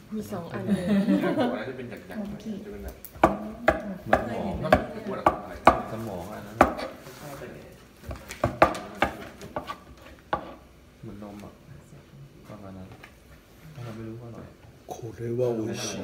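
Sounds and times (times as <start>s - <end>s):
knife chopping on plastic board: 3.2s - 6.0s, 6.6s - 7.0s, 8.0s - 10.6s.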